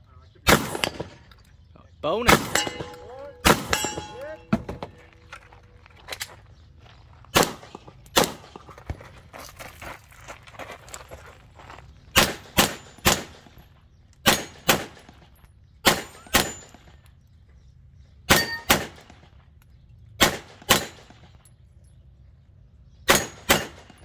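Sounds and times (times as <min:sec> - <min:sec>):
handgun shots: 0:02.3 - 0:05.0, 0:14.2 - 0:15.2, 0:23.1 - 0:24.0
short metallic ring: 0:02.5 - 0:05.1.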